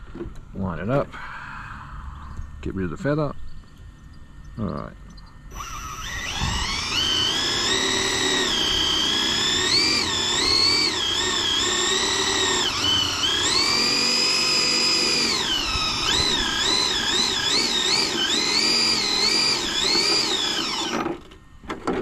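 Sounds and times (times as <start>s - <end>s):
electric motor whining: 4.6s - 21.4s.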